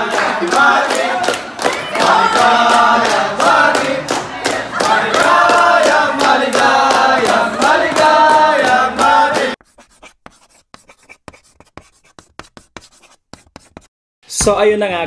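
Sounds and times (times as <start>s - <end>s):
group singing a celebration song: 0.0s - 9.6s
people clapping in time: 0.0s - 9.6s
pen scratching on paper: 9.6s - 13.9s.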